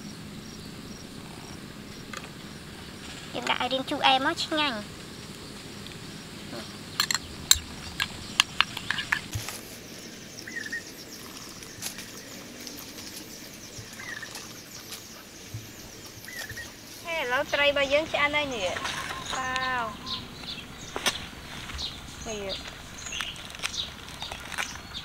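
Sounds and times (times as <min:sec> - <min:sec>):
insects chirring: 0:00.0 - 0:25.0
bird chirps: 0:05.4 - 0:25.0.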